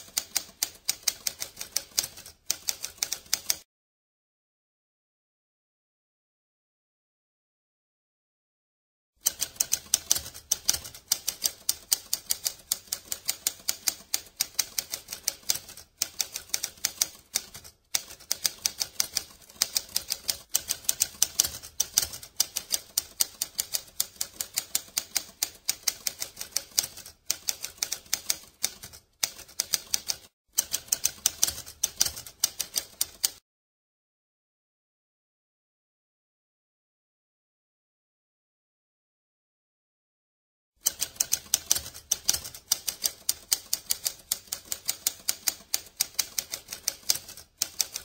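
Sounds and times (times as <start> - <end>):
typewriter keys clacking: 9.3 - 33.4, 40.8 - 48.0.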